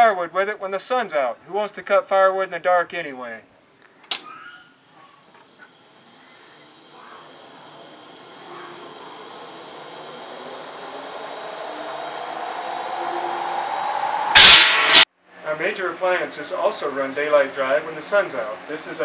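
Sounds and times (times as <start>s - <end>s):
circular saw motor whine: 5.2s - 15.1s.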